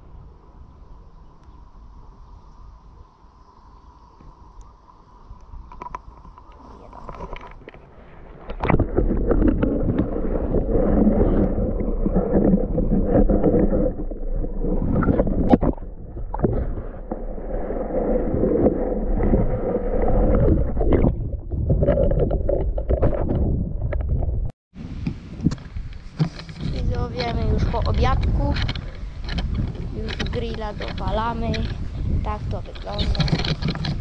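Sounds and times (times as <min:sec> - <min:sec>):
muffled underwater sloshing: 0:05.6 - 0:24.5.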